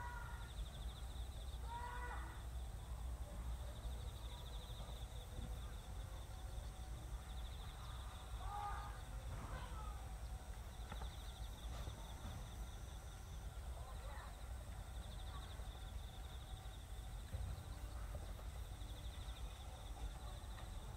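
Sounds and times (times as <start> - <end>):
distant calls: 6.4 - 20.4.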